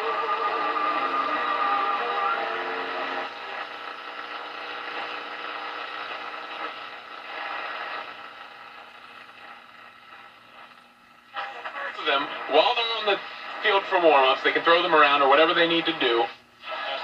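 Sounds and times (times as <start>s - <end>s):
radio broadcast audio: 0.0s - 17.0s
radio static hiss: 0.0s - 17.0s.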